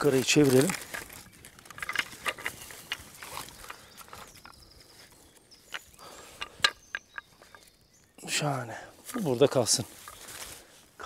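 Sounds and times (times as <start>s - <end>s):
wooden pulley block clicking and knocking: 0.7s - 4.6s, 5.6s - 7.7s.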